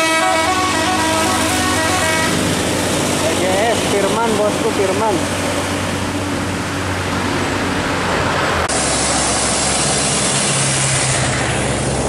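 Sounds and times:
bus engine droning: 0.0s - 12.0s
motorcycles passing: 0.0s - 12.0s
road traffic passing: 0.0s - 12.0s.

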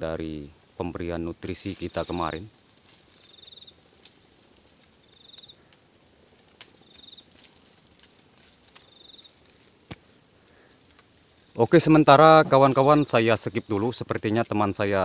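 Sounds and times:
insect trill: 0.0s - 15.0s
insects droning: 0.0s - 15.0s
faint clicks: 3.9s - 11.2s.

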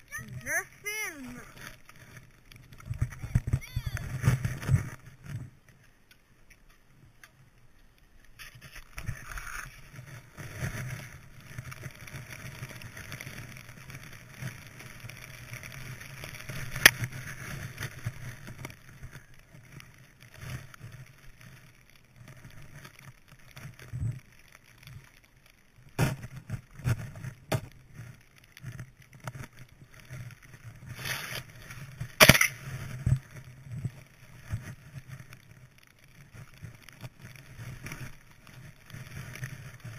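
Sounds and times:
wind rumble on microphone: 2.7s - 5.6s
skis swishing through snow: 8.2s - 39.9s.

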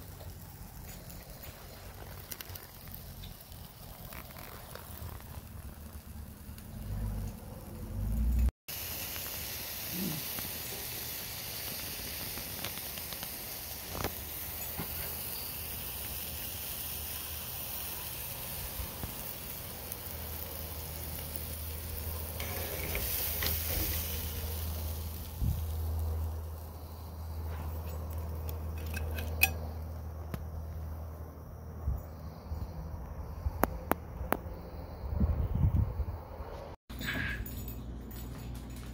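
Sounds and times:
steak sizzling on grill: 0.0s - 30.4s
metal tongs clicking: 28.5s - 29.6s.

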